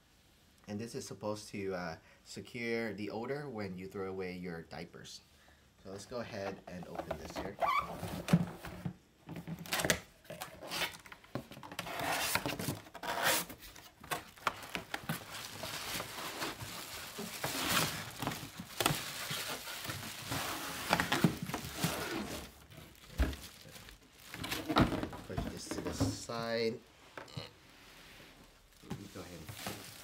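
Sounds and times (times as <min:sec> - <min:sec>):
cardboard scraping: 0:09.6 - 0:26.4
plastic wrapping crinkling: 0:10.9 - 0:25.8, 0:28.6 - 0:30.0.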